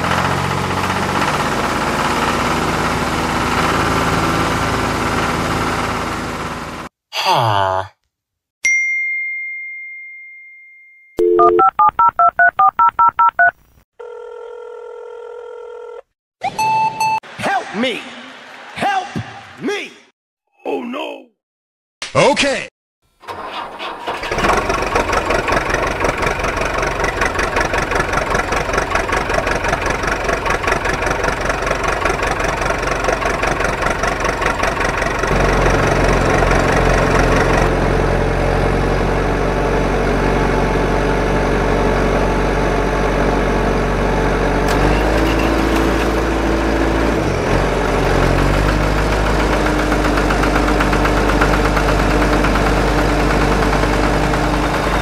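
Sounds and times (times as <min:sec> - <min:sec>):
engine chugging: 0:00.0 - 0:06.9, 0:23.3 - 0:55.0.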